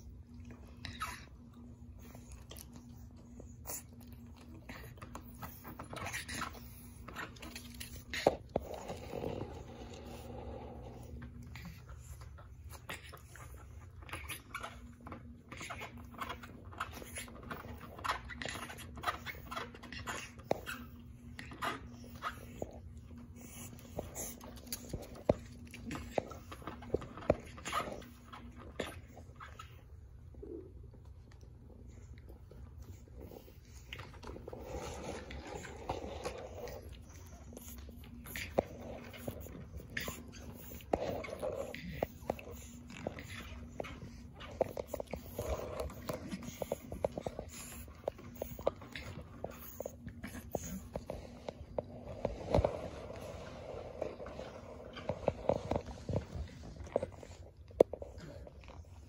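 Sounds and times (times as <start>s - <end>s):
puppy eating from a bowl: 0.0s - 59.0s
soft scuffling and rustling: 32.8s - 59.0s.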